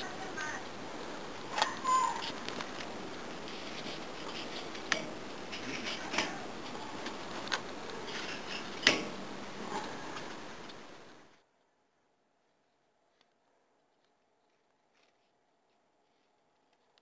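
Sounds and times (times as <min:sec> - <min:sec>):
steady hiss: 0:00.0 - 0:11.5
clicks and taps on grill grate: 0:04.2 - 0:06.4, 0:07.0 - 0:09.2.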